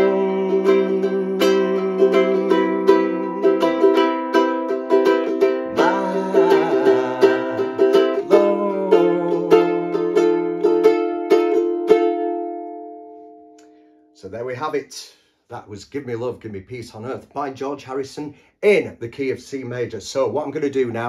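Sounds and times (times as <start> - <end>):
ukulele strumming chords: 0.0 - 13.9.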